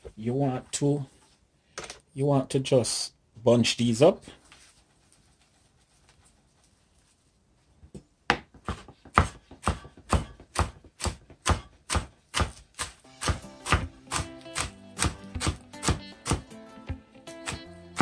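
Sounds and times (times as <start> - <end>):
knife chopping herbs on board: 8.3 - 18.0
background music: 13.0 - 18.0.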